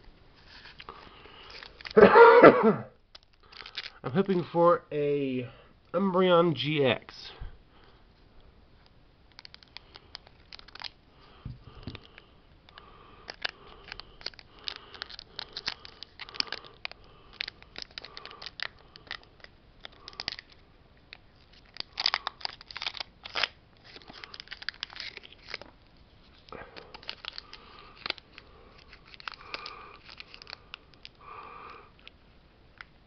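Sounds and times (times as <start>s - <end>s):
foil wrapper crinkling: 0.4s - 2.1s, 3.1s - 4.4s, 9.3s - 31.8s.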